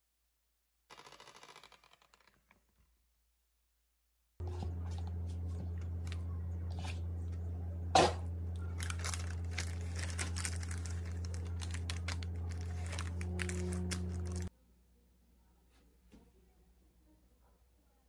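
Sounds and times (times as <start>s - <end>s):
steady low hum: 4.4s - 14.5s
paper crinkling: 8.5s - 14.5s.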